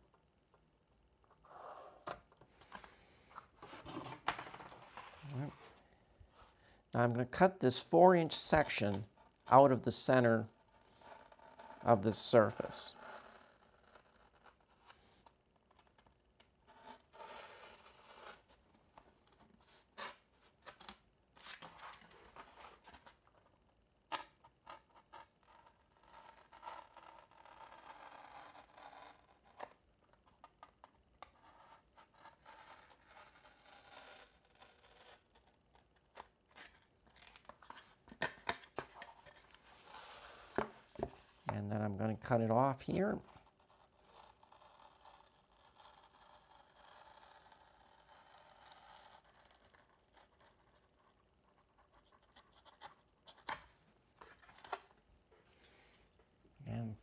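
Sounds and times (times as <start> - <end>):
knife cutting foam board: 31.3 - 41.2.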